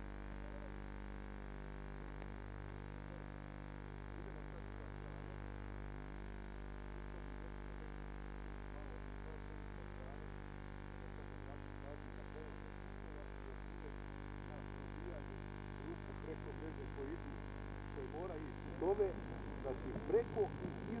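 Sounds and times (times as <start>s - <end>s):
steady electrical hum: 0.0s - 21.0s
recording hiss: 11.0s - 21.0s.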